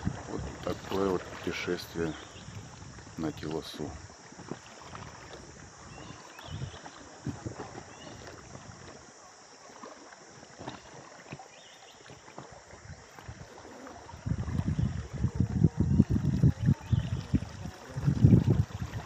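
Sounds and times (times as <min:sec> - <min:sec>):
hiss of moving water: 0:00.0 - 0:19.0
soft splashes: 0:00.0 - 0:19.0
soft knocks on boat: 0:04.3 - 0:09.0, 0:09.8 - 0:13.4.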